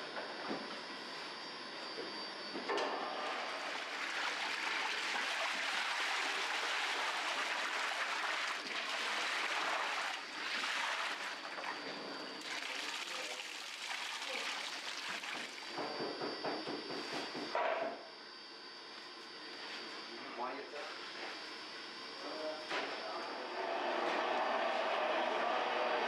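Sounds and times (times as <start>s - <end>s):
water gushing into steel bowl: 3.6s - 11.8s, 12.4s - 15.7s.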